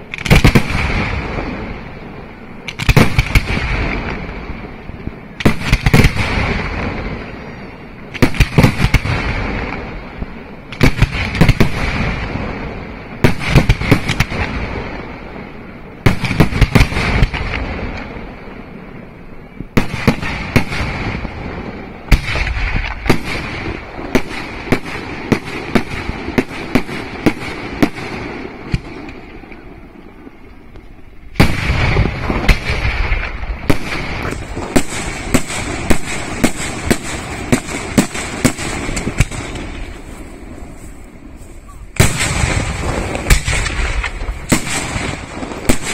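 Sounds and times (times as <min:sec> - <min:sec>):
echoing crackle: 0:00.0 - 0:45.9
firework shells bursting: 0:31.4 - 0:45.9.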